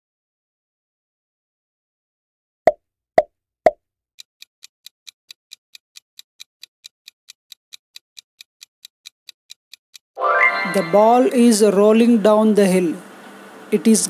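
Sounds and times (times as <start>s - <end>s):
soft clock-like ticking: 4.2s - 10.2s.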